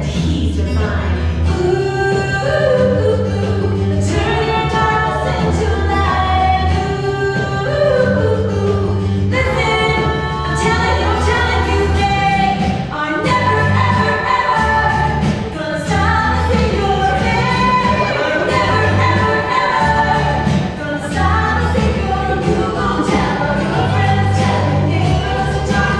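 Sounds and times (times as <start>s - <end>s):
bass line: 0.0s - 25.9s
voices singing together: 0.0s - 25.9s
band playing: 9.3s - 25.9s.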